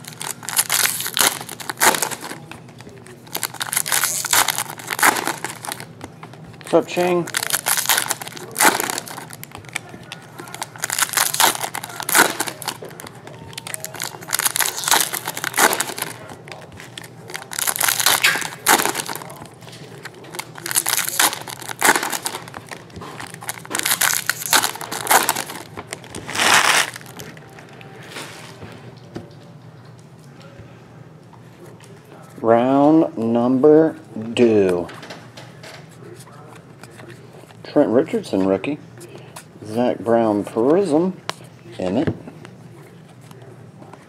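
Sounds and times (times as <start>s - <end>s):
foil wrappers tearing and crinkling: 0.0s - 5.9s, 6.7s - 27.4s.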